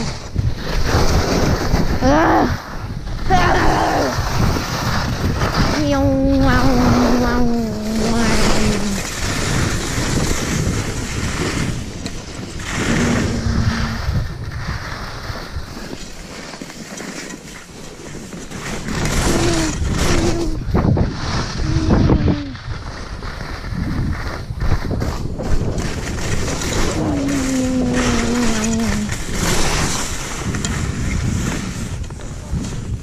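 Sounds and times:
wind on microphone: 0.0 - 16.2, 18.6 - 33.0
skis hissing on snow: 3.5 - 11.9, 26.2 - 32.0
person singing drawn-out notes: 27.0 - 29.1.

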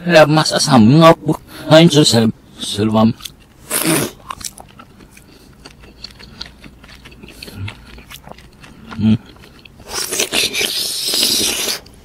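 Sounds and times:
loud slurp: 9.8 - 11.9.

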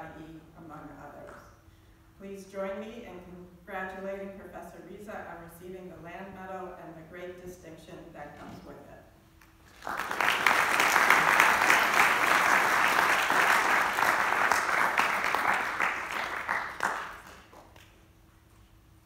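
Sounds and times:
audience applauding: 9.7 - 17.9.

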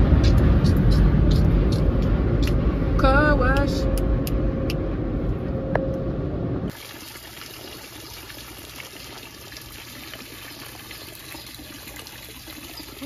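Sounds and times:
fountain splashing: 6.7 - 13.0.

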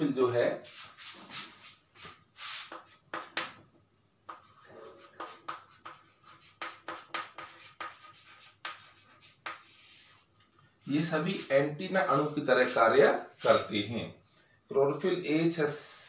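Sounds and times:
chalk writing on chalkboard: 0.6 - 3.6, 4.3 - 10.4, 11.0 - 11.5.

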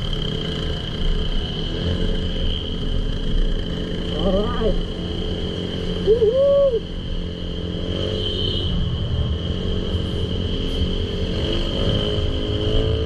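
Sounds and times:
motor scooter engine: 0.0 - 6.4
road rumble: 0.0 - 13.0.

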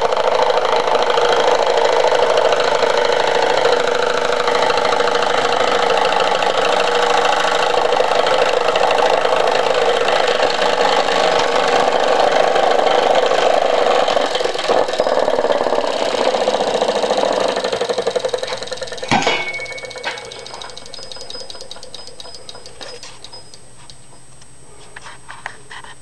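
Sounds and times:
model engine clicking buzz: 0.0 - 24.4
sharp click: 18.5 - 24.5.

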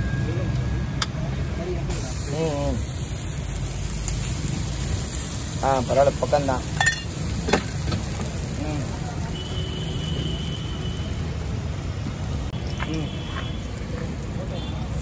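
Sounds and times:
food sizzling on a griddle: 0.0 - 15.0.

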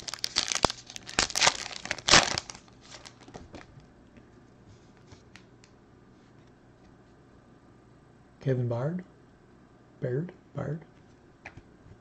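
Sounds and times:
foil wrapper crinkling: 0.0 - 3.7.

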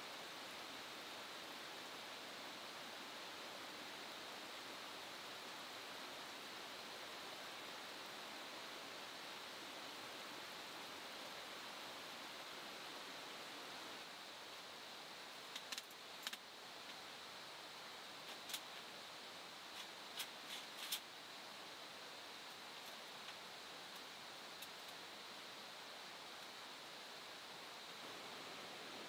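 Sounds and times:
river rushing: 18.8 - 29.0.

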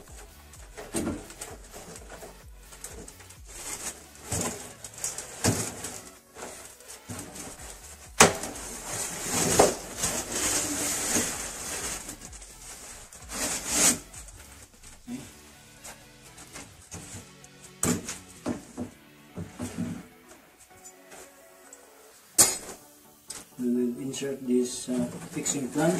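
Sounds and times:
wire mesh rubbing and scraping: 0.0 - 18.4, 24.7 - 25.9.

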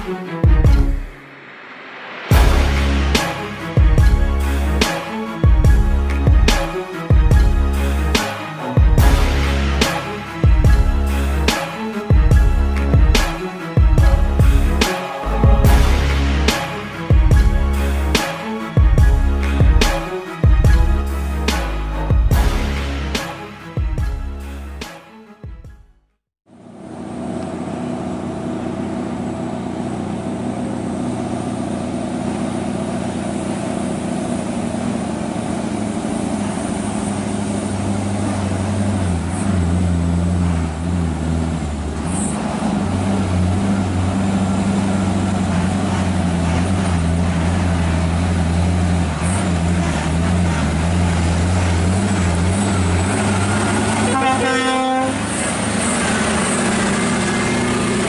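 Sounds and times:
diesel truck engines: 2.3 - 25.0, 26.5 - 58.0
air horn blast: 2.3 - 25.3, 42.0 - 58.0.

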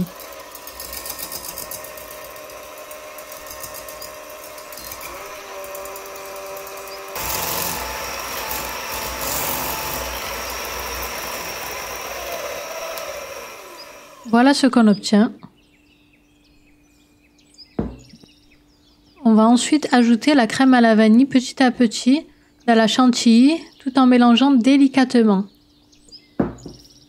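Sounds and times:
electric mixer motor whine: 0.0 - 14.7.

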